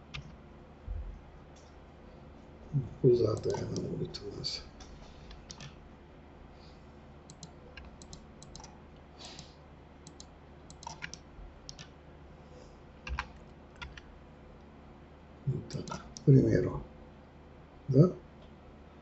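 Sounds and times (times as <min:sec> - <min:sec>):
keyboard and mouse clicking: 0:00.0 - 0:00.4, 0:03.3 - 0:03.9, 0:04.8 - 0:05.8, 0:07.3 - 0:11.9, 0:13.0 - 0:14.0, 0:15.6 - 0:16.3.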